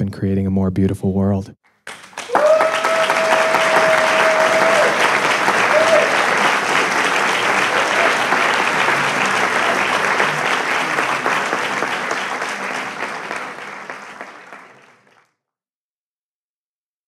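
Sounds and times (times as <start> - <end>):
audience applauding: 1.7 - 15.3.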